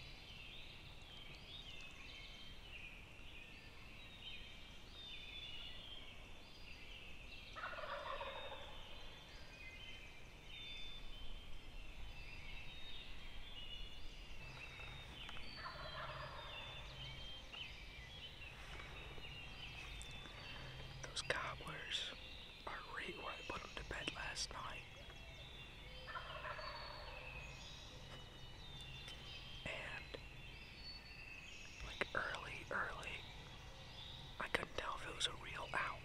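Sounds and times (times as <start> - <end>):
songbirds singing: 0.0 - 36.0
wild turkeys gobbling: 7.6 - 8.7, 15.6 - 16.8, 26.1 - 27.2.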